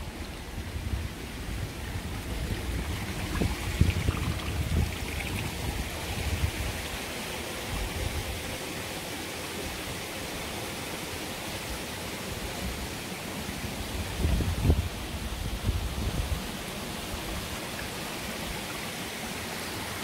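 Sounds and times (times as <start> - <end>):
low wind buffeting: 0.0 - 8.6
water running over rocks: 0.0 - 20.0.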